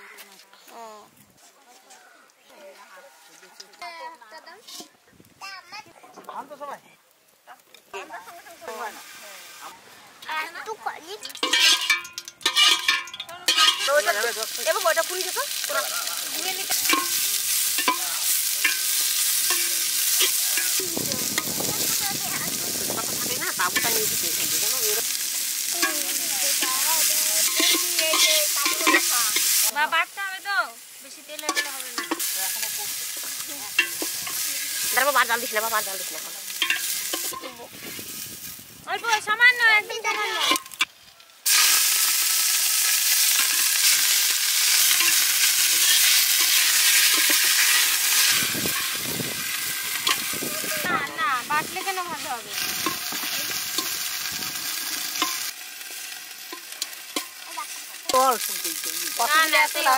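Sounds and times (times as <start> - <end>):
onions sizzling in hot oil: 6.2 - 59.9
metal ladle stirring in pot: 11.2 - 14.6, 16.6 - 21.5, 25.1 - 29.7, 31.4 - 35.0, 36.5 - 37.6, 43.2 - 50.4, 52.6 - 57.5.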